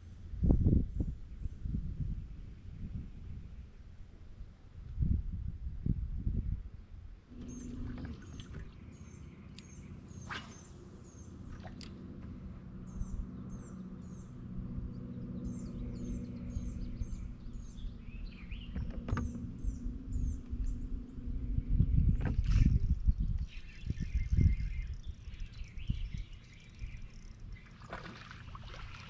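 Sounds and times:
steady low hum: 0:00.0 - 0:29.0
small bird chirping: 0:21.7 - 0:27.9.

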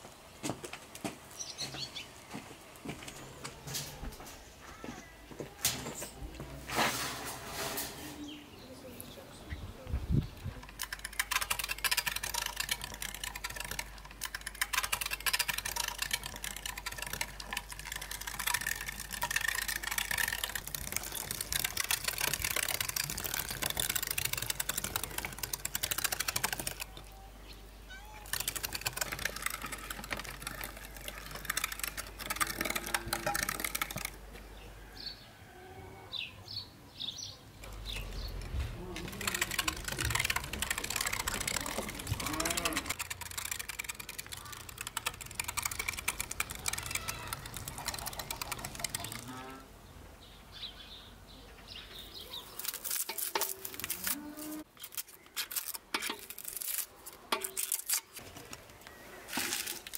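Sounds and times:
meat grinder crunching: 0:10.6 - 0:27.0, 0:28.2 - 0:34.2, 0:38.2 - 0:49.4, 0:52.5 - 0:54.2.

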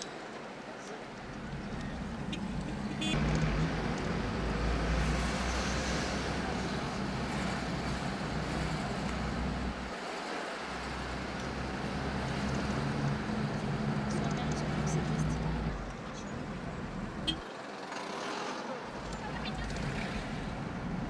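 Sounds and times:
road noise rushing: 0:00.0 - 0:21.0
car engine hum: 0:00.9 - 0:17.4.

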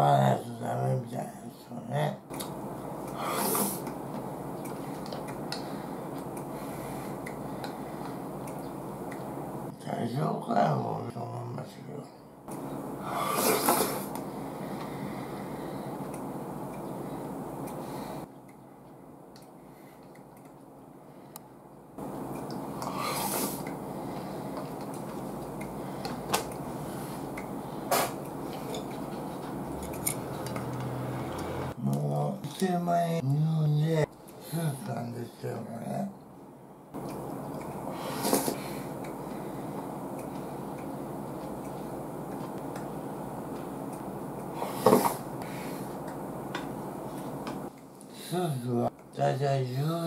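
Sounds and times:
background hiss: 0:00.0 - 0:50.0
person slurping soup: 0:03.2 - 0:03.9, 0:13.1 - 0:14.1, 0:22.8 - 0:23.7.

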